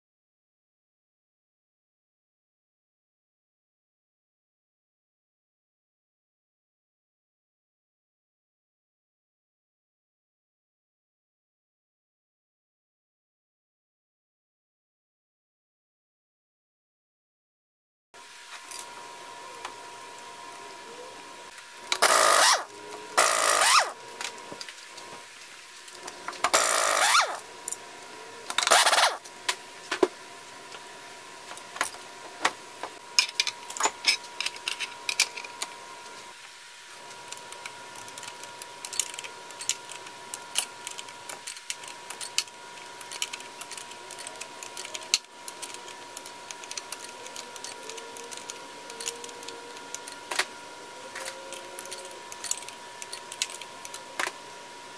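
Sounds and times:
loud harsh tool noises: 21.9 - 24.1, 26.4 - 27.5, 28.5 - 29.3
small metal clicks and clinks: 37.3 - 50.2, 51.2 - 54.0.

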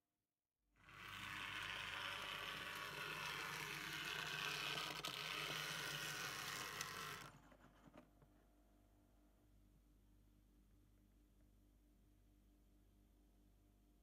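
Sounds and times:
model train whirring and rattling: 0.9 - 8.0.

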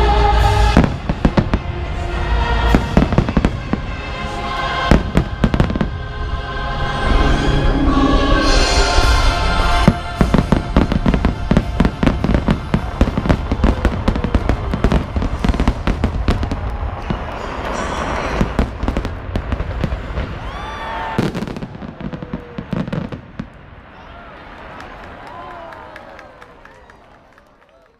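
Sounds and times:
fireworks bangs and crackles: 0.0 - 6.2, 8.4 - 27.6
firework whistles: 7.9 - 23.2.

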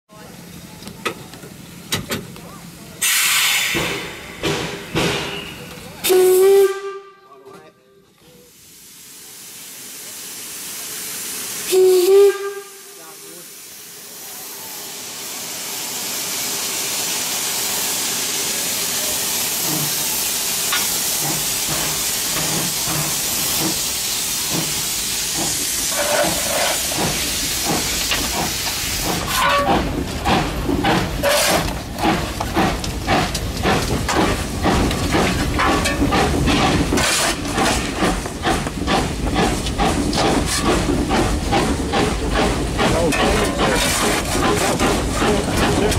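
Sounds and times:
steam hissing: 3.0 - 6.9, 8.3 - 45.9
steam locomotive whistle: 5.3 - 7.4, 11.7 - 13.1.

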